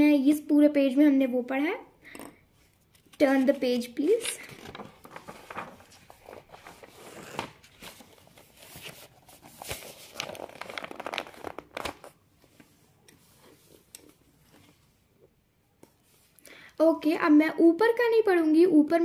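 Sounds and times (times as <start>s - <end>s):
paper rustling and crinkling: 2.8s - 14.8s.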